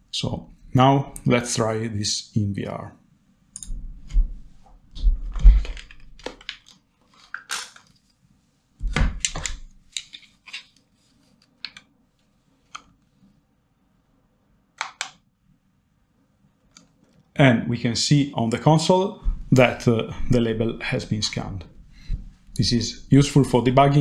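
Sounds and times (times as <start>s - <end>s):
irregular clicks and knocks: 3.5s - 6.8s, 8.8s - 10.7s
dull thumps: 19.2s - 20.4s.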